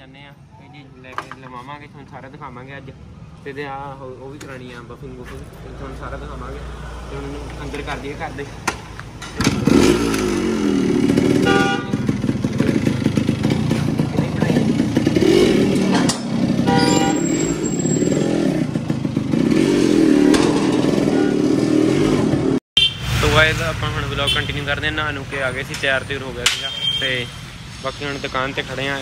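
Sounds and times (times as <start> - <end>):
motorcycle engine revving: 5.2 - 26.2.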